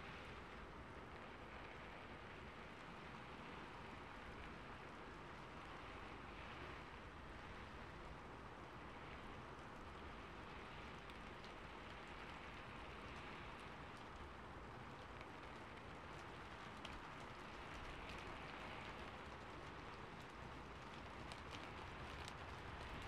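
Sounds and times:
faint steady hiss: 0:00.0 - 0:23.0
tiny ticks: 0:09.0 - 0:23.0.

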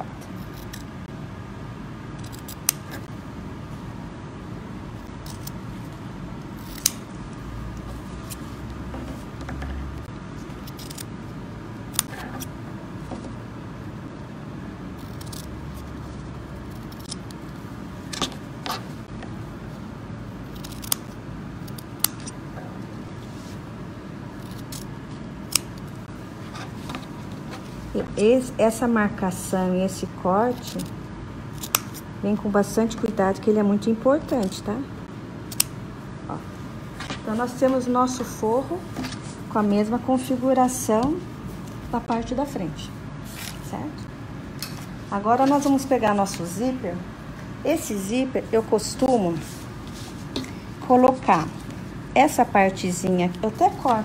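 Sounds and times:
steady low hum: 0:00.0 - 0:54.0
scissors snipping fabric: 0:02.2 - 0:03.1, 0:05.2 - 0:05.6, 0:06.6 - 0:07.1, 0:10.6 - 0:11.1, 0:11.9 - 0:12.5, 0:15.0 - 0:15.9, 0:20.5 - 0:22.4, 0:31.5 - 0:32.0.

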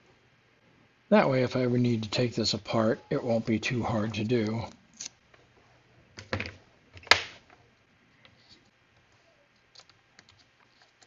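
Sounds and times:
plastic parts clicking and knocking: 0:06.2 - 0:07.4.

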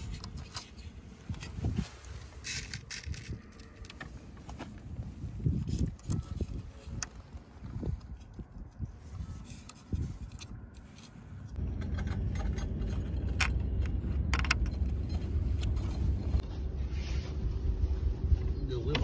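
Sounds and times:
metal cable clicks and scrapes: 0:00.0 - 0:01.6, 0:02.2 - 0:04.2
steady low rumble: 0:00.0 - 0:19.0.

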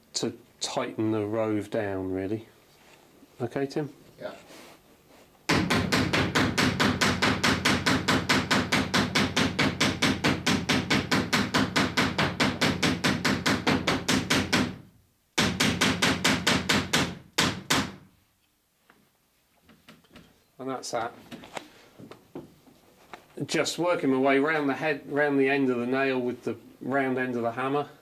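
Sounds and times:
hammer tapping on copper nail: 0:05.5 - 0:14.8.

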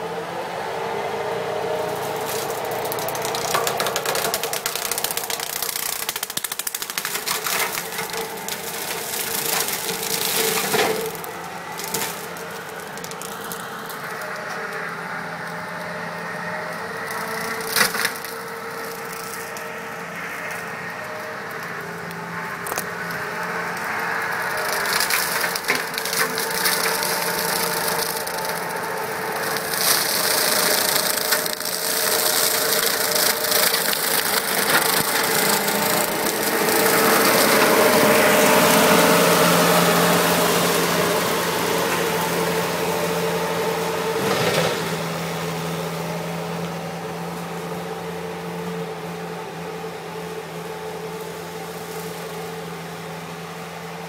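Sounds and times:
diesel engine running hard: 0:00.0 - 0:54.0
wood crackling and splintering: 0:01.9 - 0:53.2
rotary cutter drone: 0:07.0 - 0:48.0.

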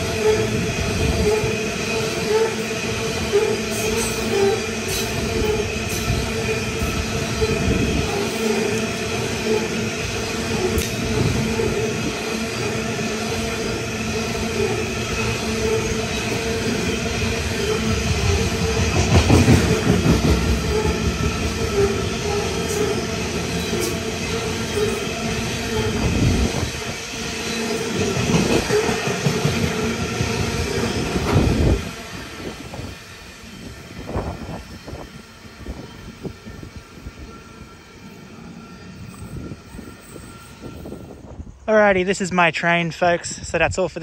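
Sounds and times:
high wheel squeal: 0:00.0 - 0:18.8, 0:20.4 - 0:26.7, 0:33.4 - 0:41.6
train wheels rumbling on rail: 0:00.0 - 0:44.0.

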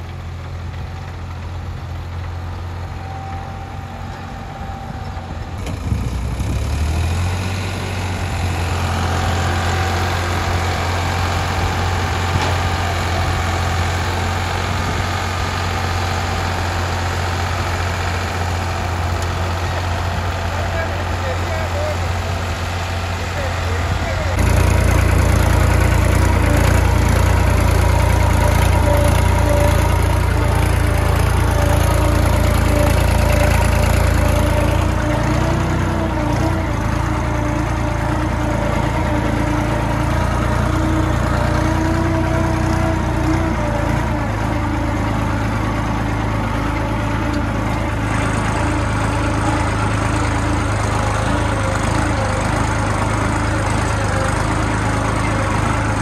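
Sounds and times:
tractor engine rumbling: 0:00.0 - 0:56.0.

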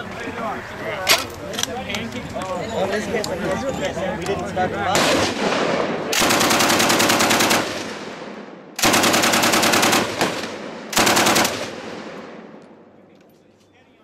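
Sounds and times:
machine gun bursts echoing: 0:05.0 - 0:08.2, 0:08.8 - 0:12.4.

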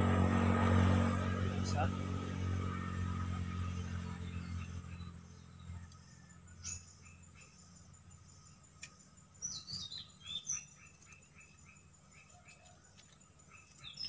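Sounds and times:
low engine drone: 0:00.0 - 0:14.0
small wildlife chirping: 0:03.7 - 0:14.0.

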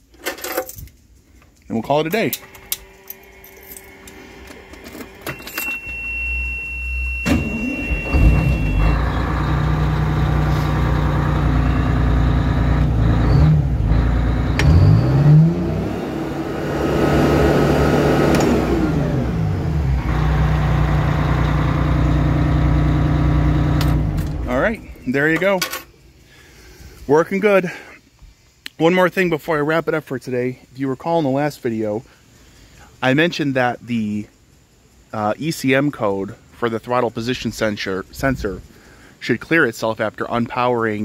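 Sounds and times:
diesel engine starting and revving: 0:02.4 - 0:25.4
high warning tone: 0:03.0 - 0:15.5.

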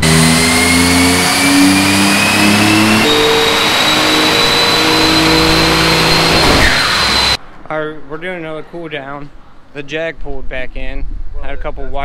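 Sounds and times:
turbo whine: 0:00.0 - 0:07.4.

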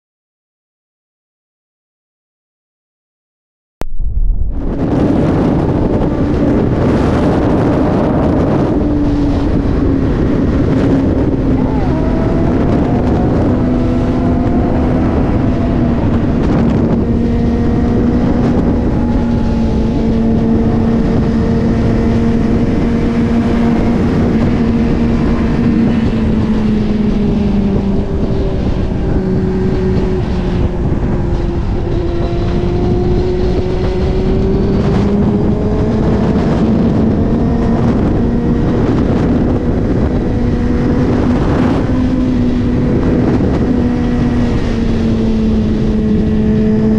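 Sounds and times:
wind rushing: 0:03.8 - 0:46.9
motorcycle engine running: 0:04.5 - 0:46.9.

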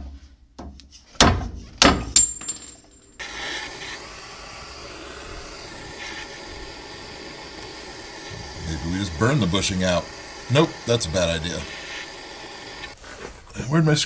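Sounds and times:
steady hiss: 0:03.2 - 0:14.0.

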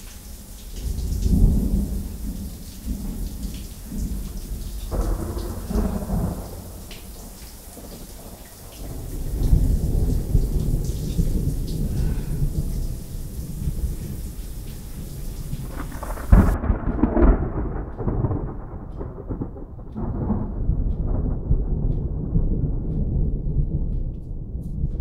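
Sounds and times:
hiss of falling water: 0:00.0 - 0:16.6
thunder rumbling: 0:00.0 - 0:25.0.

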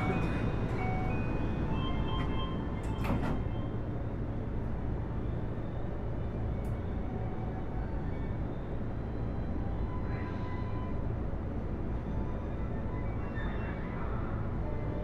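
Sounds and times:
train equipment humming: 0:00.0 - 0:15.0
sliding doors closing thud: 0:02.8 - 0:03.6.

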